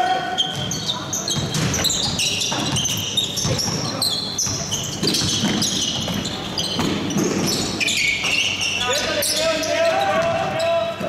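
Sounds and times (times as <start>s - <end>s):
sneaker squeaks on court: 0.2s - 10.7s
basketball dribbling: 0.5s - 8.4s.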